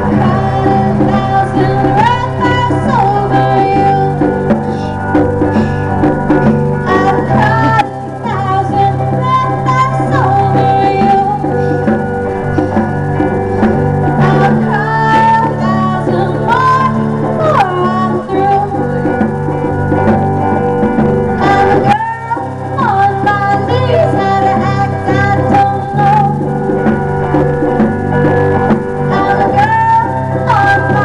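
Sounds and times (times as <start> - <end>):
woman singing: 0.0 - 5.2, 6.8 - 12.0, 14.1 - 19.2, 21.4 - 26.6, 29.0 - 31.0
congas played by hand: 0.0 - 31.0
electric guitar strumming: 0.0 - 31.0.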